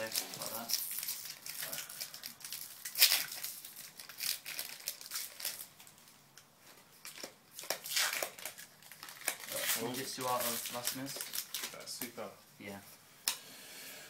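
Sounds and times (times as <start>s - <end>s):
foil wrapper crinkling: 0.0s - 6.2s, 7.0s - 12.2s
cards rustling: 7.0s - 12.2s.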